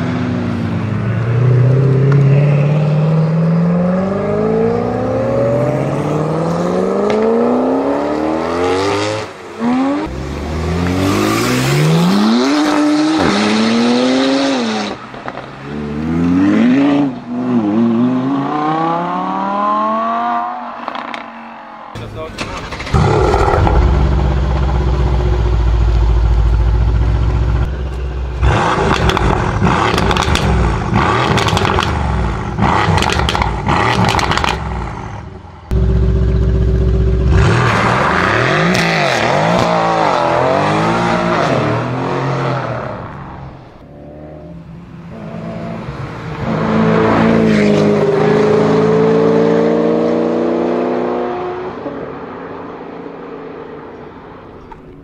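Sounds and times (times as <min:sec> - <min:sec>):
car engine revving: 0:22.0 - 0:51.7
exhaust crackling and popping: 0:22.3 - 0:35.0
second sports car accelerating: 0:35.6 - 0:52.3.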